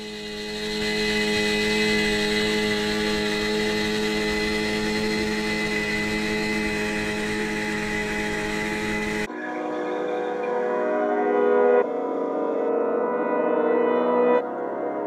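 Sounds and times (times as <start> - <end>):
outboard motor droning: 0.0 - 9.3.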